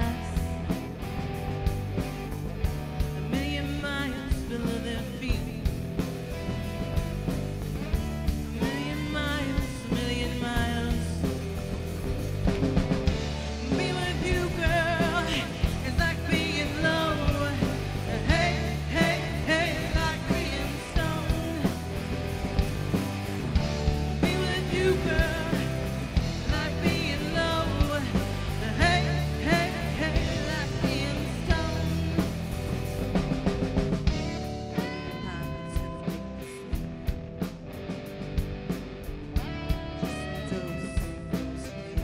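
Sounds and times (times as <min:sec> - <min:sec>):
bass: 0:00.0 - 0:42.0
steady drum beat: 0:00.0 - 0:42.0
electric guitar bent lead notes: 0:05.2 - 0:42.0.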